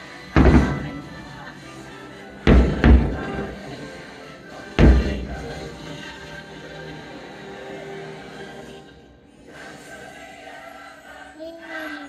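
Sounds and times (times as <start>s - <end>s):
fireworks show music: 0.0s - 7.6s
fireworks booming: 0.4s - 1.3s, 2.5s - 3.7s, 4.8s - 5.9s.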